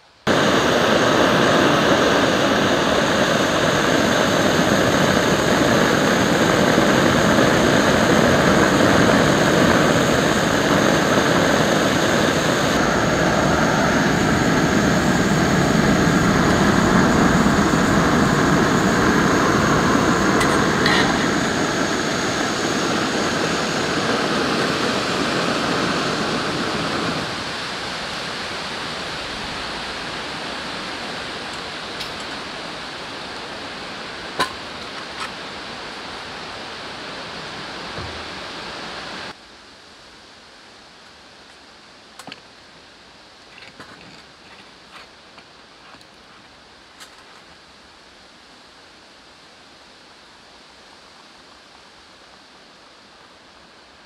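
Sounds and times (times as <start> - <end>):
gas stove burner rushing: 0.3 - 27.5.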